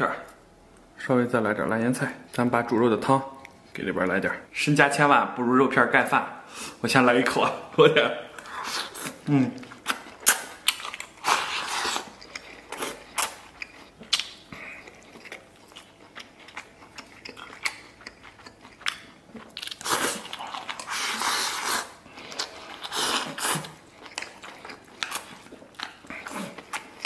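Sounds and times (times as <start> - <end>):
man chewing and slurping: 8.4 - 27.0.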